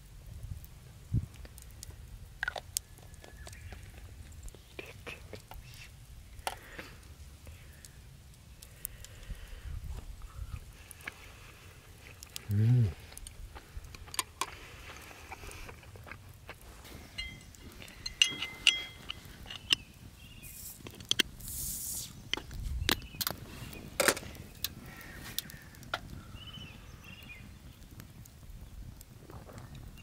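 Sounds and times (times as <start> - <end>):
gas hissing from bottle: 20.4 - 22.4.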